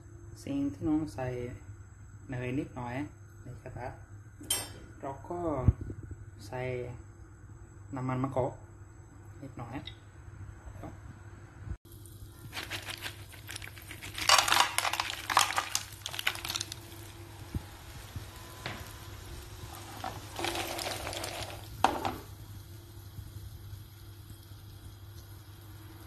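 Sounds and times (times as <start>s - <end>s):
oil sizzling in a frying pan: 11.9s - 26.0s
shells clattering against a pan: 13.8s - 16.2s.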